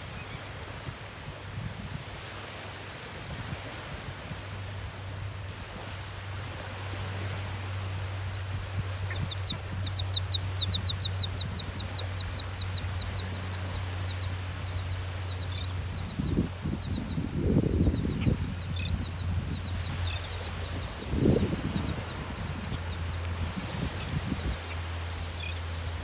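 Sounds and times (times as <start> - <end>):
flock of shorebirds calling: 8.2 - 25.8.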